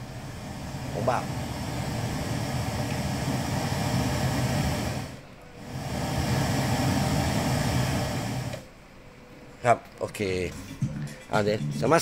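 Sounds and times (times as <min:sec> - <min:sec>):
pink noise test signal: 0:00.0 - 0:09.6.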